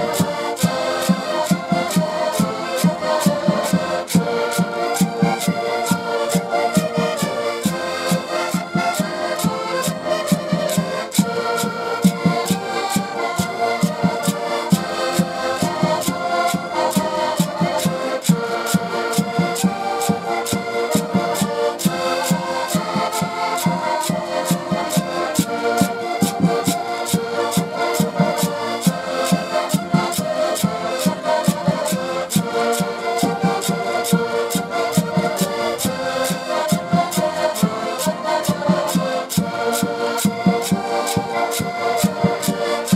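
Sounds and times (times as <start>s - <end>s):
accordions playing in unison: 0.0s - 42.9s
percussive beat: 0.0s - 42.9s.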